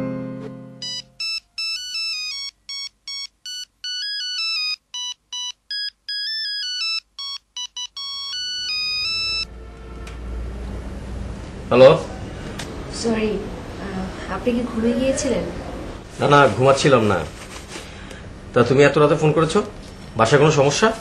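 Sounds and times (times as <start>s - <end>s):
phone ringtone beeping melody: 0.8s - 9.5s.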